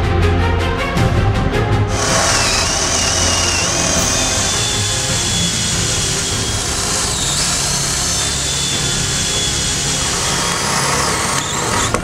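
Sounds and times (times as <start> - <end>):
background music: 0.0 - 12.0
cordless drill whining: 1.9 - 12.0.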